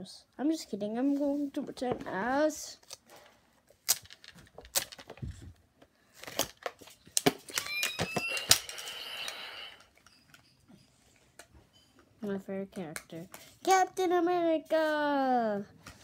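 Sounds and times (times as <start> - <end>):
brief rising squeak: 7.6 - 9.8.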